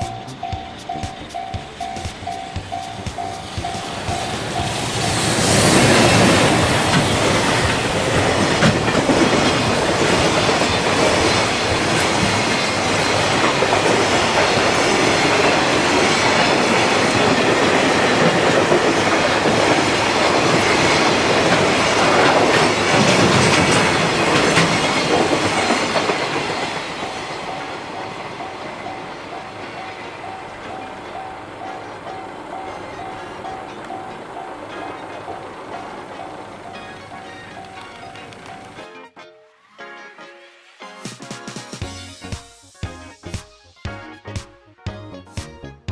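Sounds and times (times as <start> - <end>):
train wheels rumbling on rail: 0.0 - 38.8
sharp clacks of wheels: 0.1 - 27.6.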